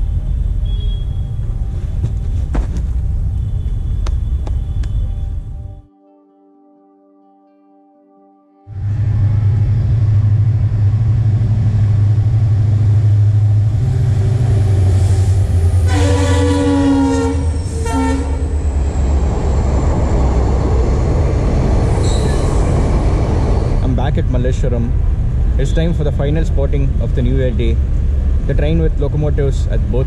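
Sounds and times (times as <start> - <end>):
diesel locomotive rumble: 8.8 - 30.0
train horn blasts: 15.6 - 18.6.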